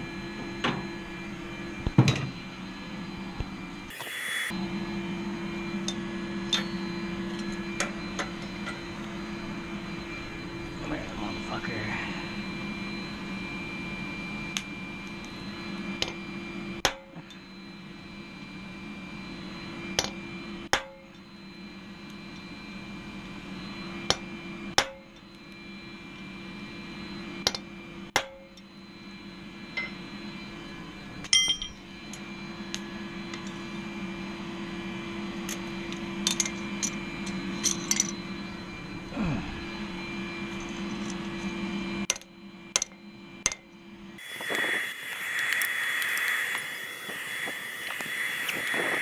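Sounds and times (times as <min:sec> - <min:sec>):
gas forge humming: 0:00.0 - 0:49.0
hammer striking metal on anvil: 0:20.7 - 0:21.0, 0:24.8 - 0:25.0, 0:28.2 - 0:28.5, 0:31.3 - 0:31.8.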